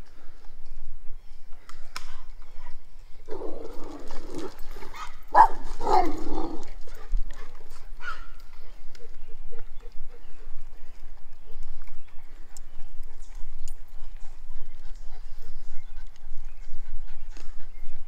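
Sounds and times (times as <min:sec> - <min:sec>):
dogs vocalizing: 0:12.2 - 0:18.0.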